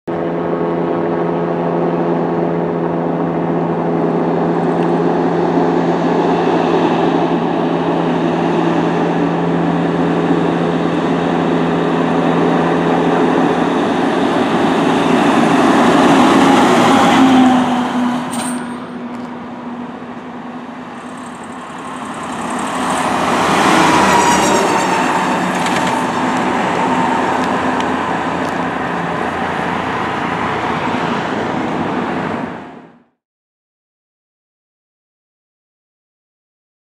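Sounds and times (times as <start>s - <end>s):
fire engine passing: 0.2s - 33.2s
fire truck siren sweeping: 5.8s - 18.3s, 20.4s - 32.7s.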